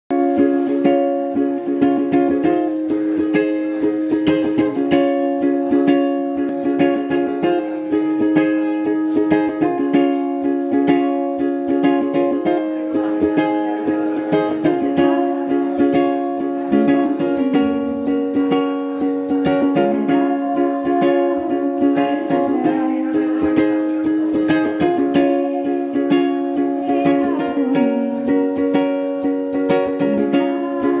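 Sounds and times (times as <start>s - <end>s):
ukulele strumming: 0.1s - 31.0s.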